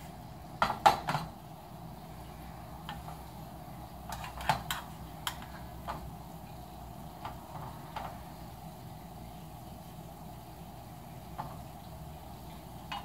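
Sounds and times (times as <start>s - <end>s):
metal spatula tapping frying pan: 4.1s - 5.5s.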